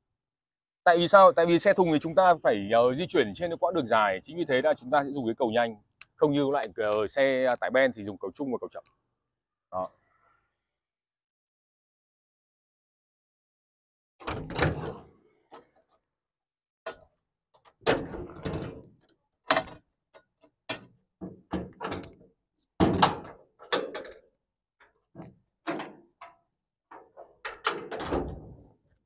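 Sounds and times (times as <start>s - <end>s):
metal latches and doors clanking: 14.2s - 15.0s, 17.8s - 18.9s, 19.5s - 19.8s, 20.7s - 22.2s, 22.8s - 24.2s, 25.2s - 28.6s.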